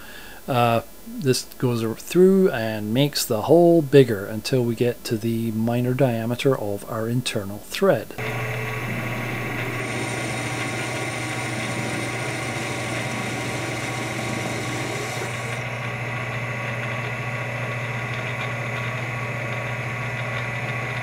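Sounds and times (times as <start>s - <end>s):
lathe motor and gear hum: 8.2s - 21.0s.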